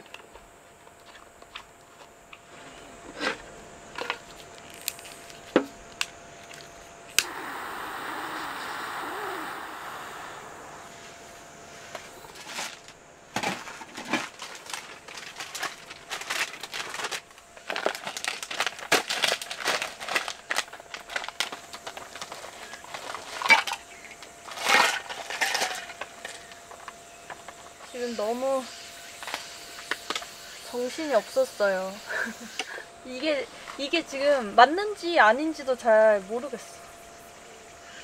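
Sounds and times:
fabric rustling and crinkling: 12.3s - 23.4s.

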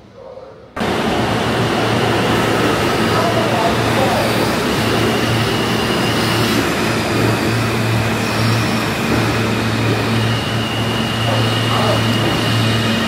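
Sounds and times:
train wheels rumbling on rails: 0.8s - 13.0s.

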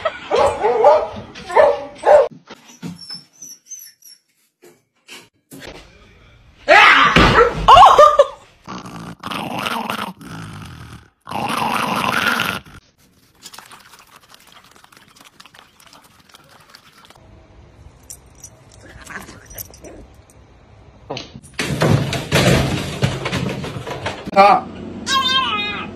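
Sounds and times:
small dog growling: 8.7s - 12.8s
puppies eating from bowl: 13.0s - 17.2s.

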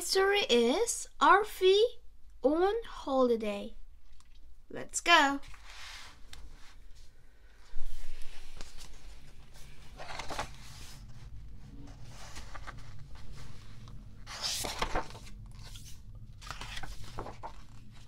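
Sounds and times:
book pages turning: 5.4s - 7.0s, 7.6s - 18.0s.

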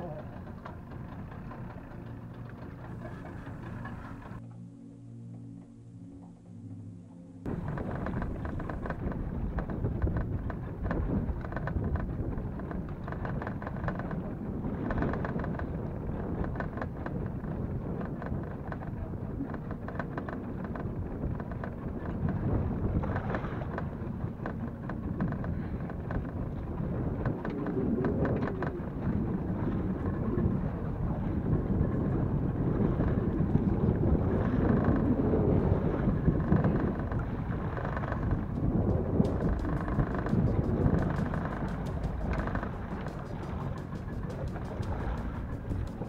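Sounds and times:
wind buffeting microphone: 0.0s - 4.4s, 7.4s - 46.0s.

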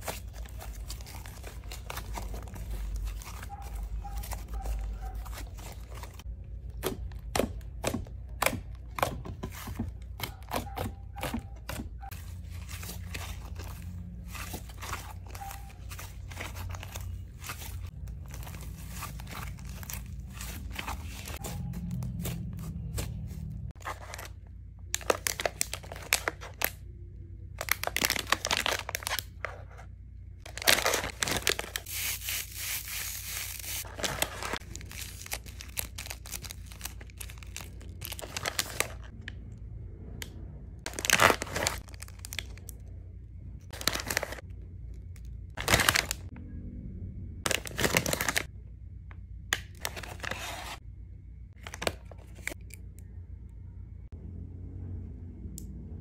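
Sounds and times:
plastic bags crinkling: 0.0s - 6.2s, 12.1s - 21.4s, 25.0s - 26.7s, 27.6s - 29.4s, 30.5s - 39.1s, 40.9s - 42.8s, 43.7s - 44.4s, 45.6s - 46.2s, 47.5s - 48.5s.

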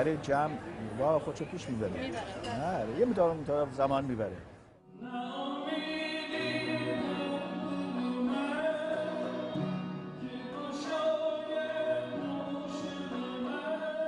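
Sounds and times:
person singing long held notes: 4.9s - 14.0s.

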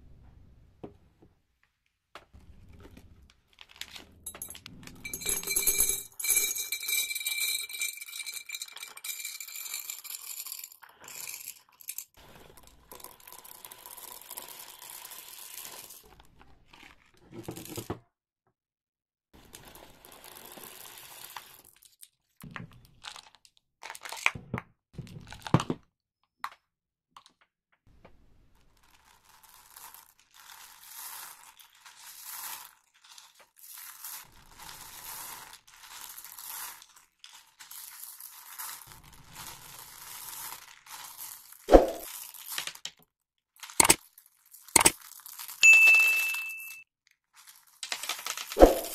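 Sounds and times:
candy wrappers crinkling: 2.8s - 4.5s, 22.7s - 24.3s, 28.5s - 43.0s, 43.6s - 46.4s, 47.2s - 48.9s.

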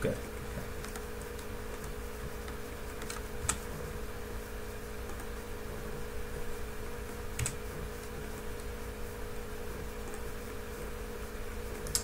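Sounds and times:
low electrical hum: 0.0s - 12.0s
computer keyboard clicks: 7.4s - 7.6s.

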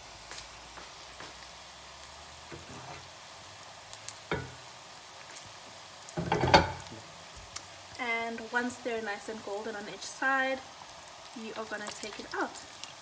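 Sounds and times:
oil sizzling with pops: 0.0s - 13.0s
clatter in the pan: 4.3s - 4.6s, 6.1s - 6.9s.

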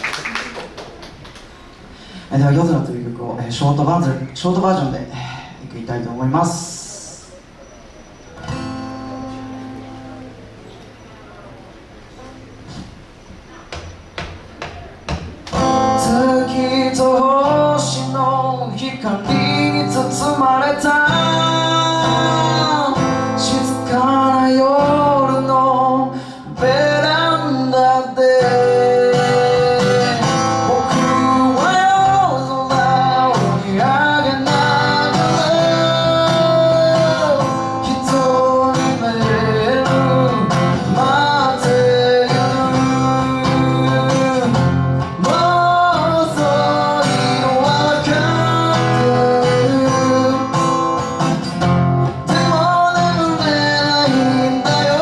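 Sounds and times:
acoustic guitar strumming: 8.3s - 11.3s, 12.0s - 55.0s
electric guitar: 8.4s - 11.0s, 14.5s - 55.0s
man singing: 15.6s - 51.1s, 52.1s - 55.0s.

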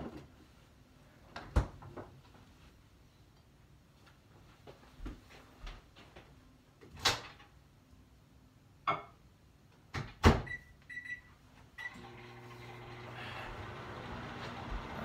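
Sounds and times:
microwave oven humming: 11.8s - 15.0s.

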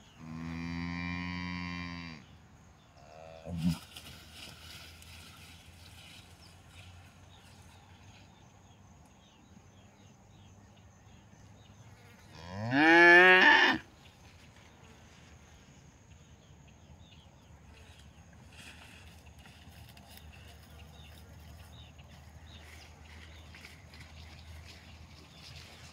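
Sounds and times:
cow mooing: 0.2s - 2.3s, 3.0s - 3.8s, 12.3s - 13.8s.

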